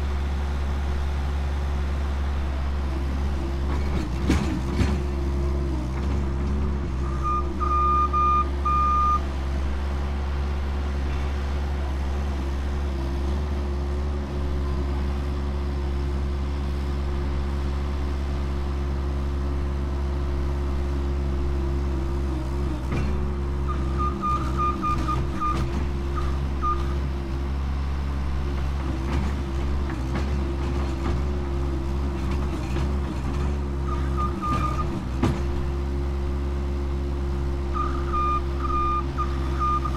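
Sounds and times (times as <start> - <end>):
loader engine running: 0.0 - 39.9
reverse alarm beeps: 7.1 - 9.2, 23.7 - 25.6, 26.2 - 27.0, 37.8 - 39.9.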